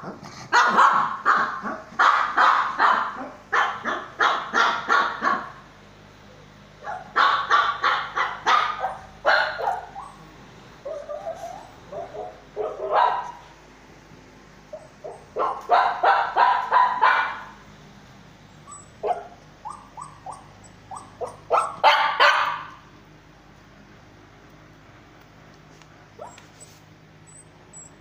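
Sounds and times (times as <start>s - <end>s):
small dog barking and yipping: 0.0s - 5.7s, 6.8s - 13.5s, 14.7s - 17.6s, 18.5s - 22.9s, 26.1s - 28.0s.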